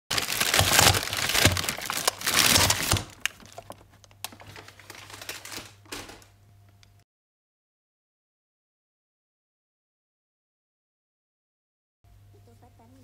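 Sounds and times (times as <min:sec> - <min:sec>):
paper bag crinkling: 0:00.1 - 0:06.3
plastic wrap rustling: 0:00.1 - 0:06.4.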